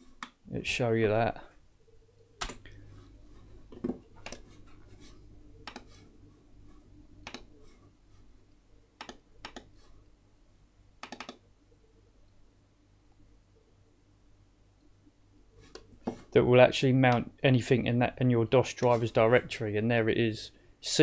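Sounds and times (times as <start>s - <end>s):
faint low hum: 0.0s - 21.0s
computer mouse buttons clicking: 4.2s - 4.4s, 5.6s - 6.0s, 7.2s - 7.5s, 9.0s - 9.7s, 11.0s - 11.4s.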